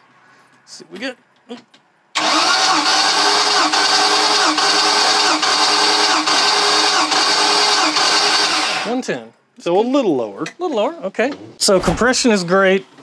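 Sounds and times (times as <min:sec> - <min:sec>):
starter motor cranking engine: 0:02.2 - 0:09.0.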